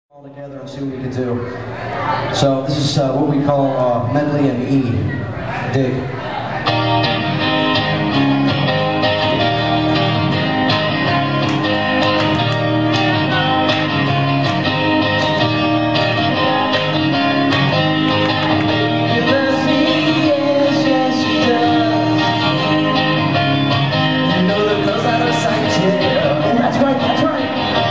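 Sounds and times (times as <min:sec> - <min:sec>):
live rock band playing: 0:06.6 - 0:27.9.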